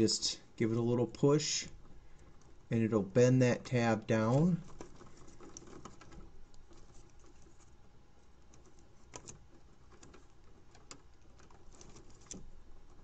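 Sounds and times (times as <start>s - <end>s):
metal pick scratching plastic: 4.6s - 13.0s.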